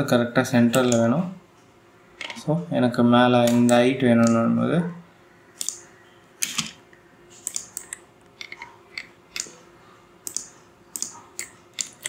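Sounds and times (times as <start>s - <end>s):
mouse clicks: 5.6s - 5.9s, 10.2s - 12.0s.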